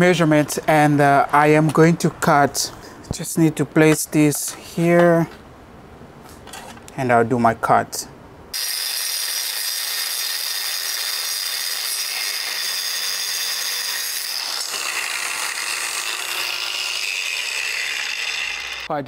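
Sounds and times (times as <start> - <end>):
angle grinder cutting metal: 8.6 - 18.9.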